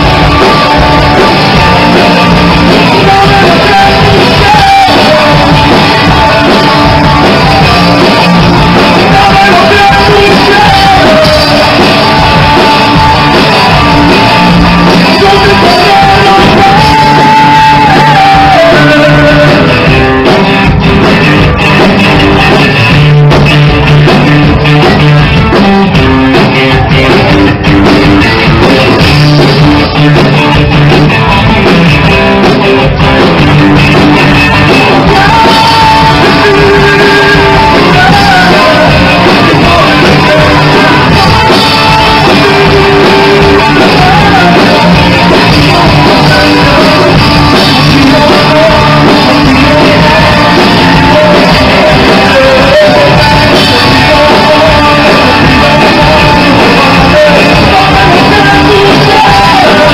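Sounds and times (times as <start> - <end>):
person singing: 0.0 - 20.8, 33.3 - 59.9
drums: 0.0 - 59.9
electric guitar: 0.0 - 59.9.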